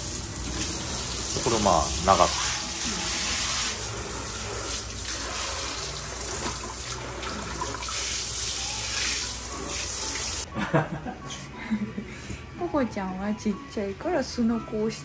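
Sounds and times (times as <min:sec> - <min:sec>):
shower head spraying water: 0:00.0 - 0:10.5.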